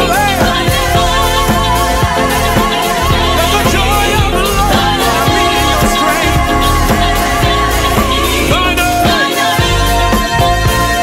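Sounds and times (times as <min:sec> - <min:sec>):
gospel band playing: 0:00.0 - 0:11.0
people singing: 0:00.0 - 0:11.0.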